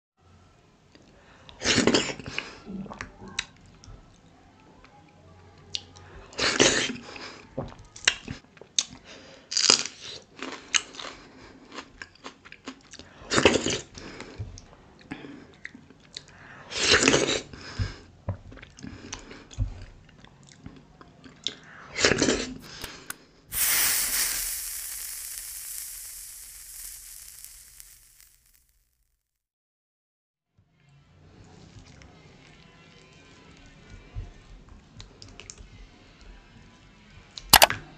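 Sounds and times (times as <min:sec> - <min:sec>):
hissing swoosh sound effect: 0:22.6 - 0:28.7.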